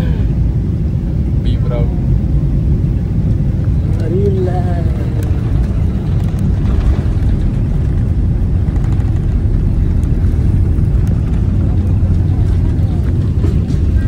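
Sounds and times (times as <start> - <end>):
jet engines rumbling: 0.0 - 14.0
wheels rolling on runway: 3.9 - 14.0.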